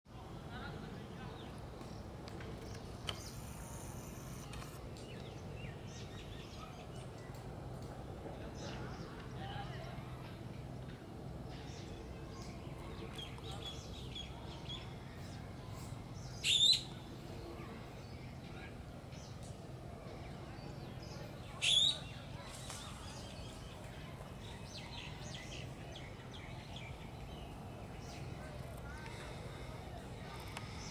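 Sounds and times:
faint bird chirps: 2.6 - 7.4, 13.1 - 19.4, 20.9 - 23.6
bird calls: 16.2 - 17.0, 21.0 - 23.7.

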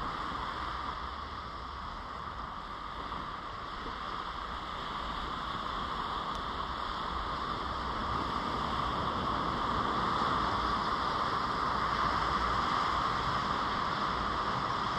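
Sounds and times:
surf: 0.0 - 14.9
wind: 0.0 - 14.9.

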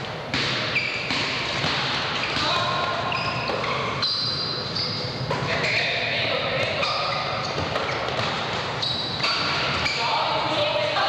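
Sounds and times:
sneakers squeaking: 0.0 - 11.0
echoing voices: 2.3 - 11.0.

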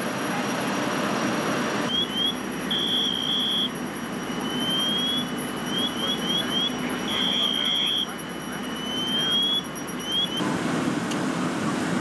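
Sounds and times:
fire engines idling: 0.0 - 12.0
electronic alarm chirps and beeps: 1.9 - 10.4.

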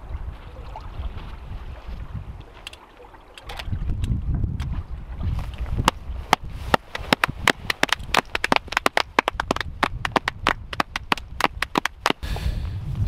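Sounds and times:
wind rumbling on microphone: 0.0 - 13.0
people clapping: 7.0 - 12.2.

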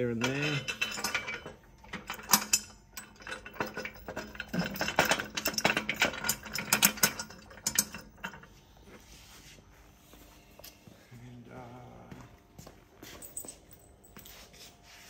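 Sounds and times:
metal washers clicking and rattling: 0.0 - 8.5.

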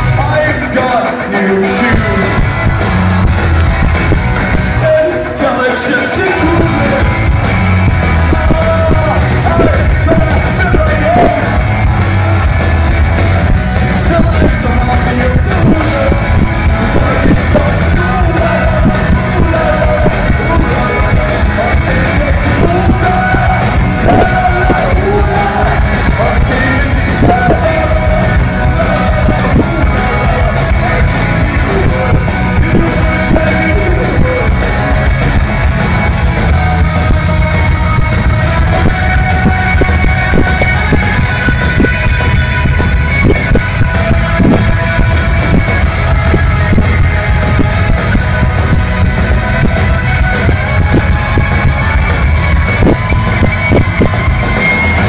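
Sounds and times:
loud music with singing: 0.0 - 55.0.

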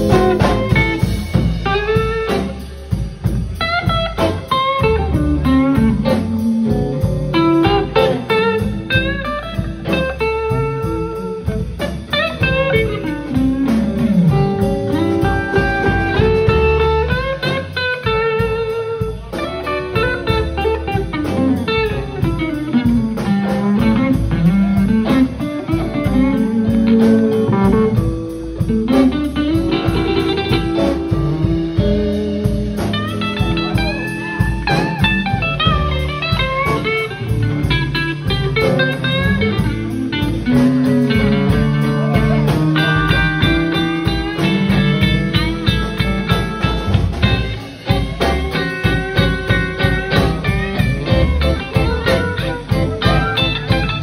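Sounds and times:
drum kit beat: 0.0 - 54.0
electric guitars playing: 0.0 - 54.0.

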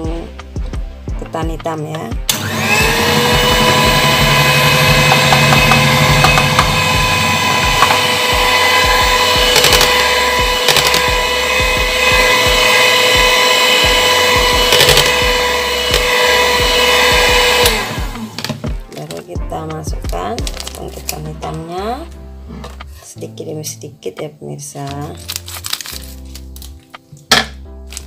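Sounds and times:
electric hand mixer running: 2.3 - 19.0.

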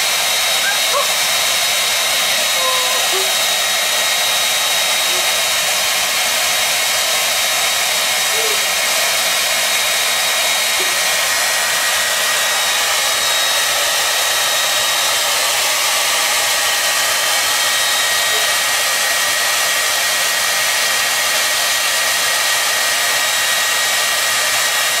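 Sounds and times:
high motor whine: 0.0 - 16.8
hair dryer blowing air: 0.0 - 25.0.

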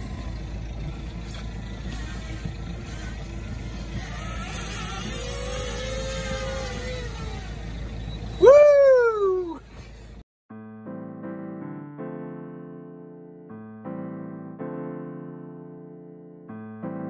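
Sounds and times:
boat engine rumble: 0.0 - 10.2
drone propellers whining: 0.0 - 10.2.

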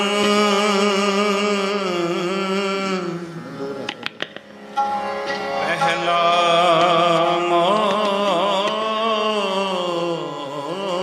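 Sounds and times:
harmonium: 0.0 - 11.0
sharp taps: 3.9 - 4.5.

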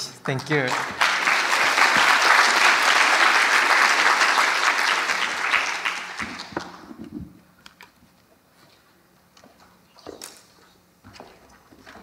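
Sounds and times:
audience applauding: 0.2 - 7.0.

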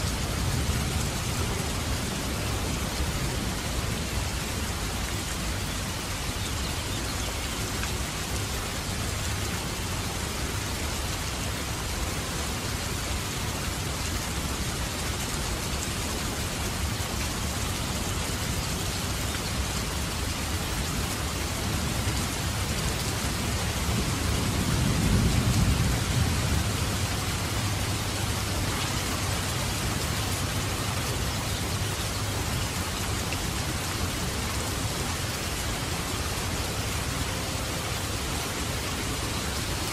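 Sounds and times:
steady rain hiss: 0.0 - 39.9
low rumble of thunder: 23.2 - 30.7.

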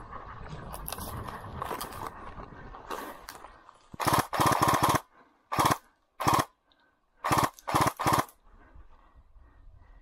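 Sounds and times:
airsoft gun firing bursts: 4.0 - 6.5, 7.2 - 8.4.

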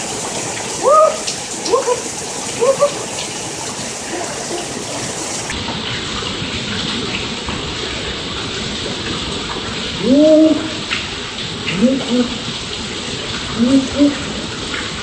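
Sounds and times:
heavy rain pouring: 0.0 - 15.0
man whooping yells: 0.8 - 3.0.

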